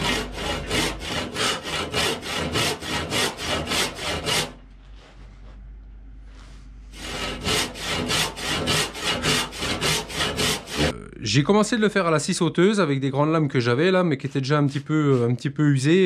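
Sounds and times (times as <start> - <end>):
handsaw cutting wood: 0.0 - 4.6, 6.9 - 10.9, 14.2 - 15.5.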